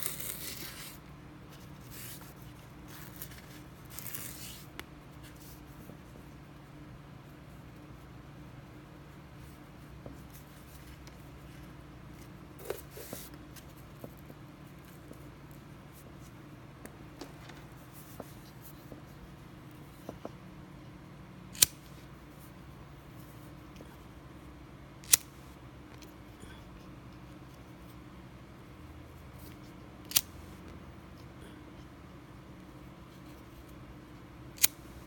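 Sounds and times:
fingers rustling cord: 0:00.0 - 0:06.3.

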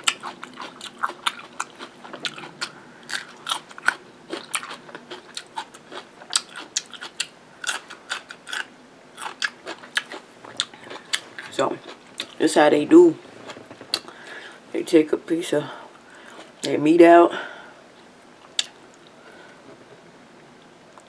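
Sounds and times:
crunching cucumber: 0:00.0 - 0:12.4.

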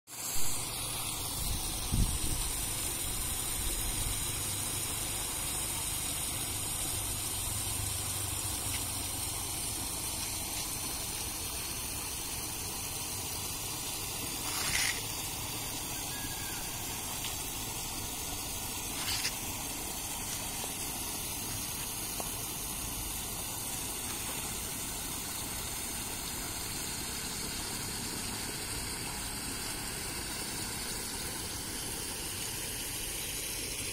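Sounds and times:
water rushing over dam: 0:00.2 - 0:33.9
short loud hisses: 0:14.4 - 0:15.2.

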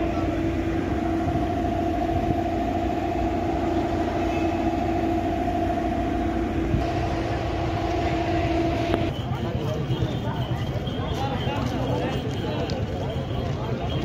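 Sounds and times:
steady whine: 0:00.0 - 0:09.8
diesel bus engine idling: 0:00.0 - 0:11.1.

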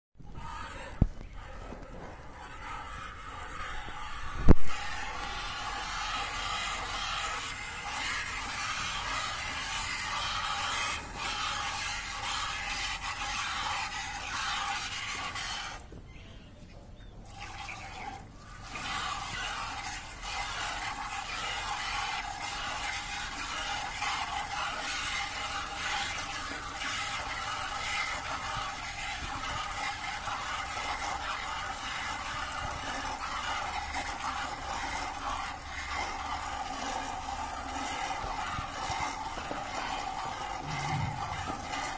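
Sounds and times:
milk squirting into plastic bucket: 0:17.3 - 0:41.9.

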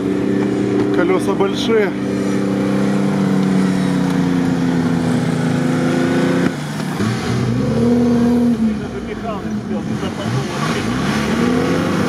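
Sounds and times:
truck engine at high revs: 0:00.0 - 0:12.0.

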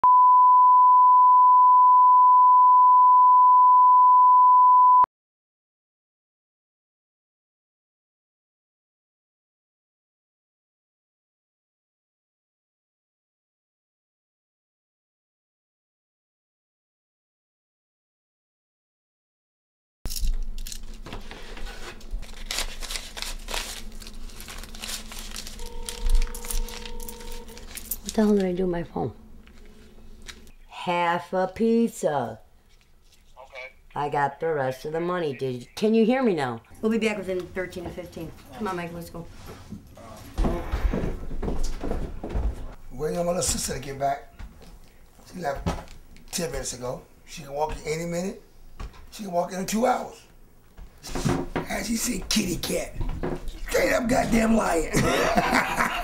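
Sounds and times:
banknotes rustling and crinkling: 0:20.1 - 0:28.6.

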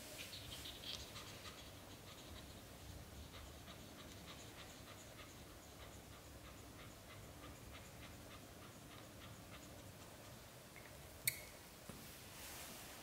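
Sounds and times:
cat panting: 0:00.3 - 0:10.6.

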